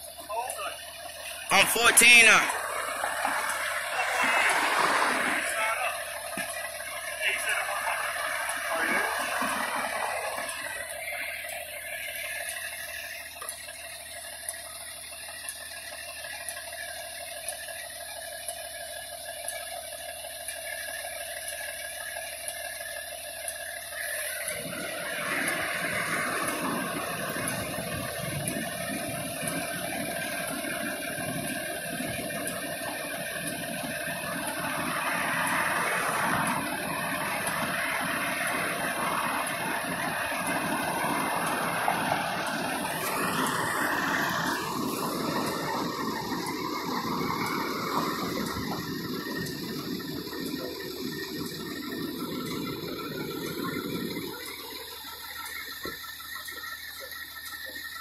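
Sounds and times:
pump mechanical hum: 0.0 - 58.0
loud rushing noise: 1.5 - 6.0
hiss: 2.6 - 6.2, 23.8 - 58.0.

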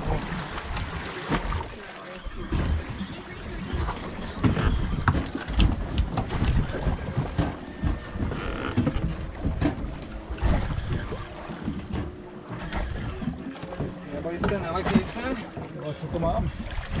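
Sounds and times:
water slapping boat hull: 0.0 - 17.0
wind buffeting microphone: 3.7 - 13.4.

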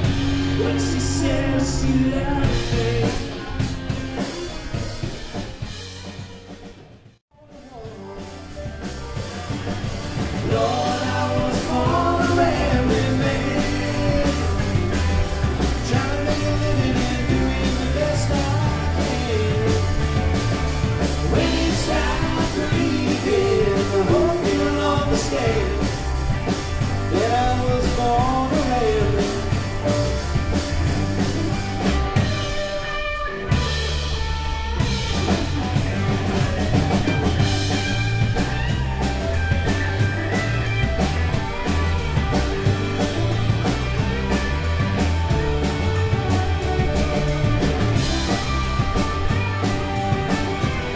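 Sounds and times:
bending lead guitar melody: 0.0 - 6.9, 7.7 - 50.9
rock band playing: 0.0 - 50.9.

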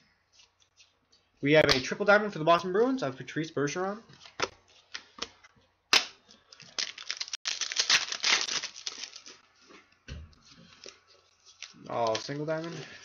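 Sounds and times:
wrapper tearing and crinkling: 6.5 - 9.4.

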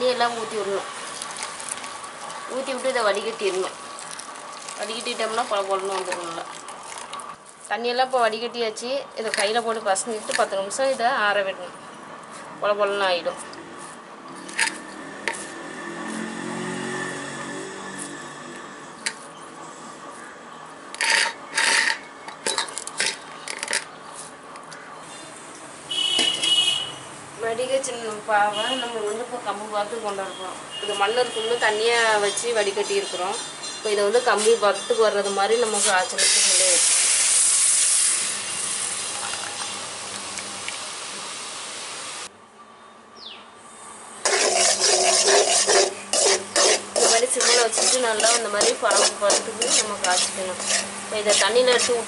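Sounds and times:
metal ladle scraping pan: 21.0 - 23.2, 44.2 - 52.0
syrup sizzling in hot pan: 36.2 - 40.1, 44.2 - 52.0.

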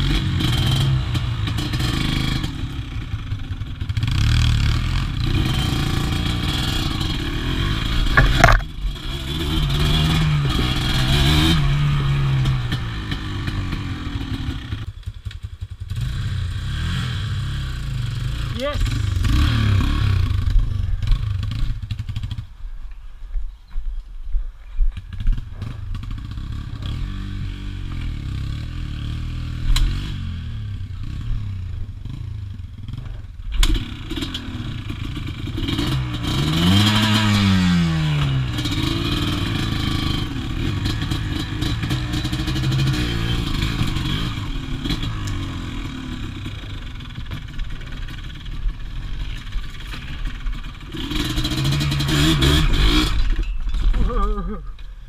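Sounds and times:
quad engine running under throttle: 0.0 - 22.4, 25.2 - 55.0
clattering over rough ground: 8.0 - 9.1, 52.7 - 55.0.

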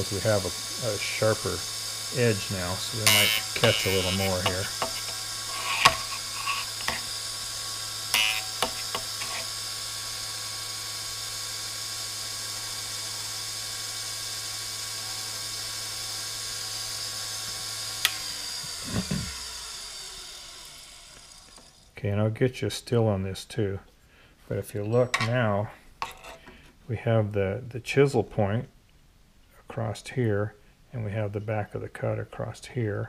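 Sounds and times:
drill bit scraping grinding wheel: 0.0 - 22.0
grinder motor running: 0.0 - 22.0.

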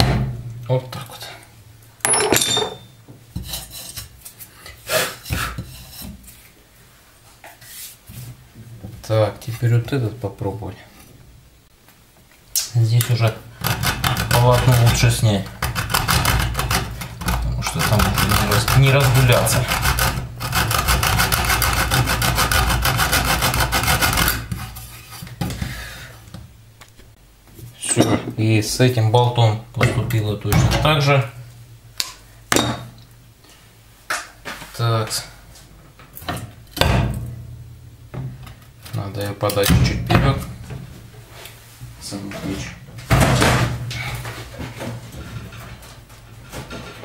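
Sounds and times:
sharp metallic clink: 2.0 - 3.0
hacksaw sawing through bolt: 17.7 - 24.7.

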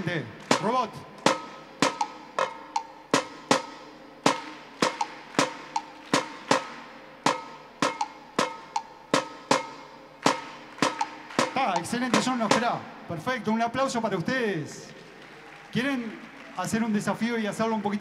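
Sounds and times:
robot striking drums: 0.4 - 12.9.

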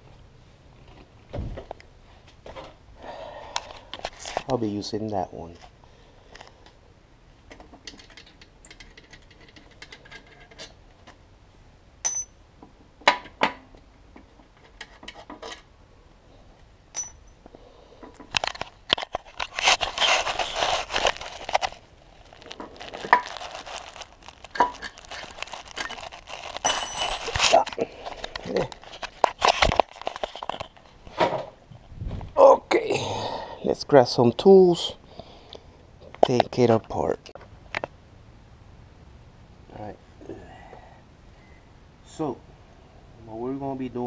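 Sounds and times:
rustling and scraping: 0.0 - 2.8, 3.5 - 4.6, 14.1 - 15.7, 18.0 - 32.4
metal tools clicking and clinking: 12.0 - 12.4, 17.0 - 17.4, 26.6 - 27.7.

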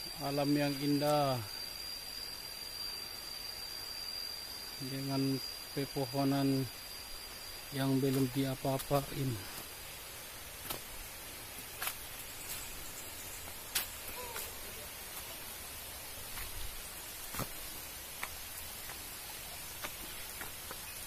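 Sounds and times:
steady hiss: 0.0 - 21.0
footsteps on leafy rocky trail: 8.0 - 21.0.

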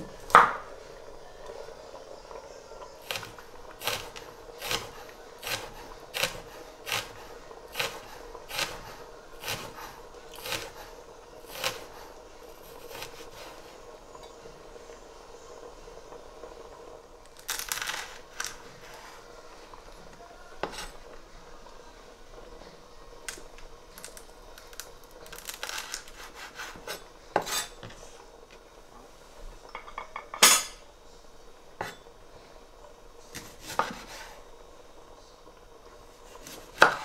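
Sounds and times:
knife slicing ginger on board: 3.1 - 7.2, 7.8 - 10.8, 11.5 - 12.0, 12.8 - 13.5, 33.4 - 34.3, 36.4 - 37.0.

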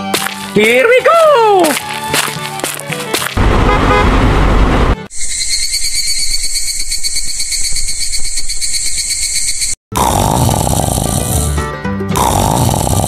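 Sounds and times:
loud low rushing noise: 3.4 - 5.1
insect chirring: 5.1 - 9.8.

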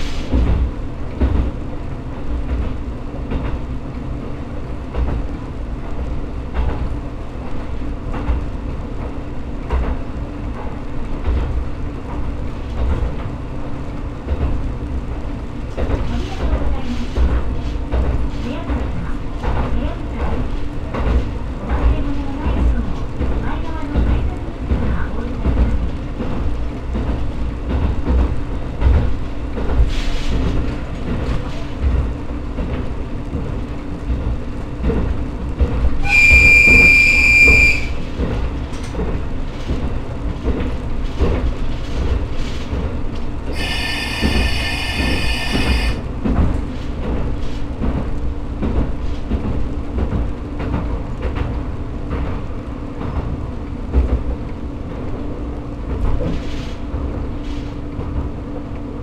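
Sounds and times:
railcar engine rumble: 0.0 - 59.0
short high-pitched tones: 36.1 - 37.9, 43.6 - 46.0.

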